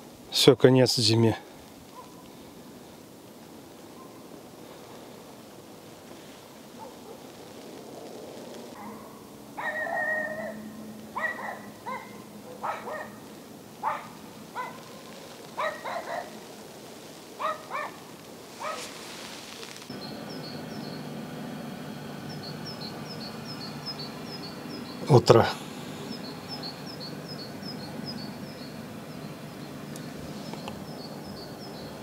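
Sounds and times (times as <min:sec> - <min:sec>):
dog barking: 0:01.9 - 0:02.2, 0:06.7 - 0:07.3, 0:08.8 - 0:10.6, 0:11.2 - 0:13.2, 0:13.8 - 0:16.4, 0:17.4 - 0:18.0, 0:18.6 - 0:18.9
small bird chirping: 0:18.6 - 0:21.4, 0:22.0 - 0:32.0.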